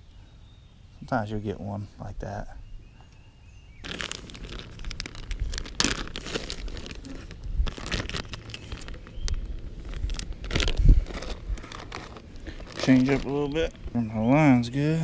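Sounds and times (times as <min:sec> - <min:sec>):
plastic bag crinkling: 0:03.8 - 0:13.8.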